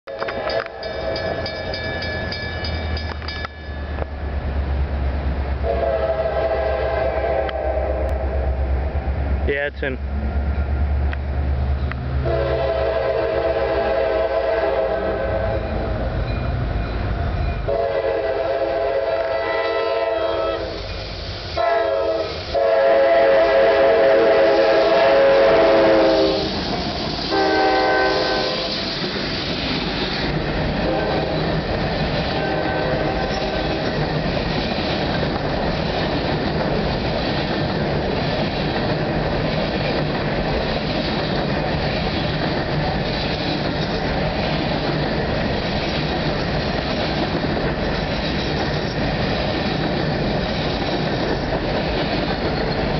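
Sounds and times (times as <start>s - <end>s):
train wheels on rails: 0.0s - 52.9s
locomotive air horn blasts: 5.6s - 8.6s, 12.2s - 15.9s, 17.7s - 20.9s, 21.6s - 26.6s, 27.3s - 28.8s, 30.8s - 31.4s, 32.3s - 33.9s.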